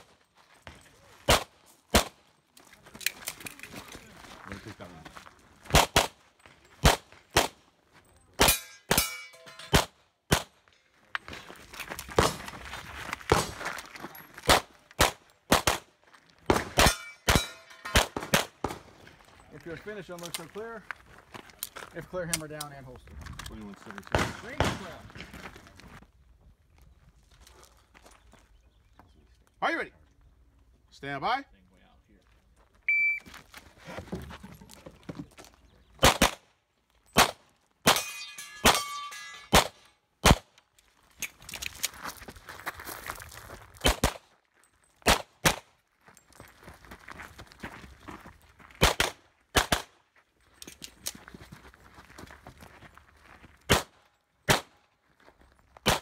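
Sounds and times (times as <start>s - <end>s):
pistol shots: 1.3s - 2.2s, 5.7s - 6.2s, 8.4s - 10.6s, 14.5s - 15.9s, 16.5s - 18.9s, 36.0s - 36.4s, 37.2s - 40.5s, 43.8s - 44.2s, 45.0s - 45.7s, 48.8s - 50.0s, 53.7s - 54.8s
metallic ring of steel targets: 8.2s - 9.8s, 16.8s - 18.2s, 37.9s - 39.9s.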